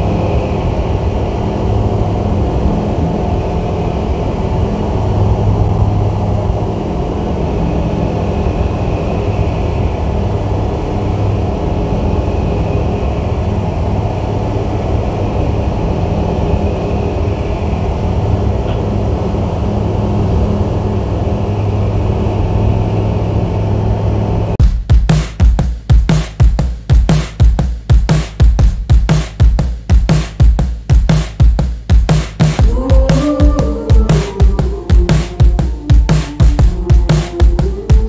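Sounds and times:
aircraft engine and propeller droning: 0.0 - 24.6, 32.6 - 38.0.

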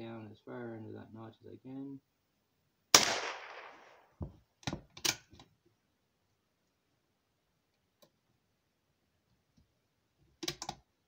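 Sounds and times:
rifle shot echo: 2.9 - 4.2
rifle bolt metallic clicks: 10.4 - 10.8.

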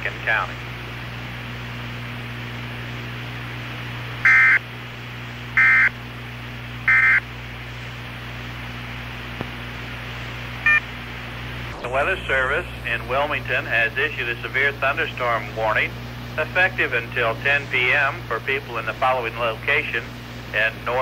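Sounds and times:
broadcast hiss and hum: 0.0 - 21.0
digital data tone bursts: 4.2 - 4.6, 6.9 - 7.2.

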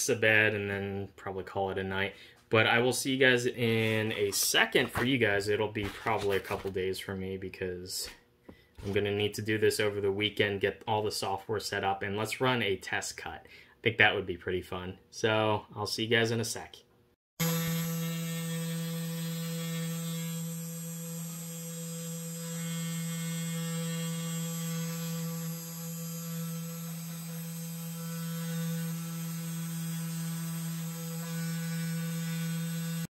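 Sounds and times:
engraving bit cutting wood: 17.4 - 33.0
router spindle motor humming: 17.4 - 33.0.

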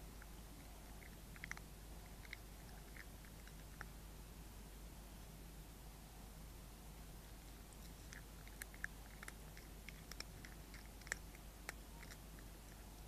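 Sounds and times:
cat chewing crunching: 0.2 - 4.0, 7.3 - 13.0.

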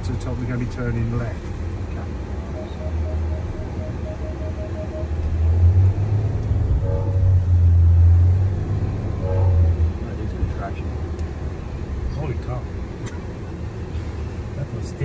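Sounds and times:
engine and drivetrain rumble: 0.0 - 15.0
short beeps: 2.4 - 5.7, 6.8 - 7.5.

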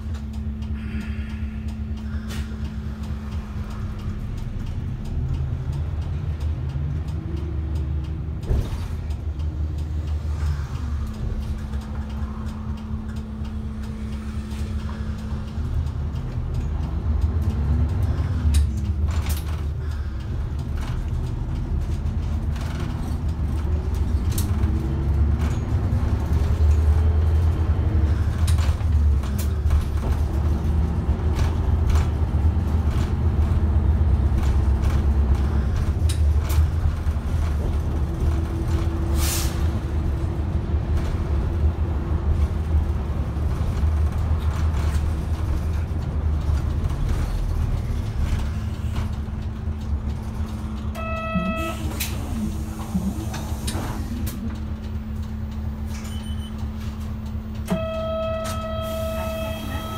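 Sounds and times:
bus diesel engine rumbling: 0.0 - 59.9
air brakes hissing: 0.8 - 2.6, 39.1 - 39.7, 51.6 - 54.4, 58.4 - 59.9
short ringing tone: 57.7 - 59.9.

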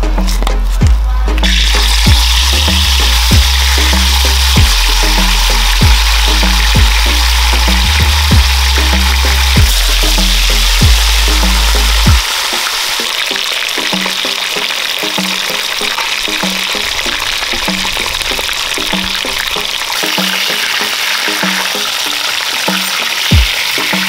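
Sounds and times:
background music with bass: 0.0 - 24.0
fish sizzling in hot oil: 1.4 - 24.0.

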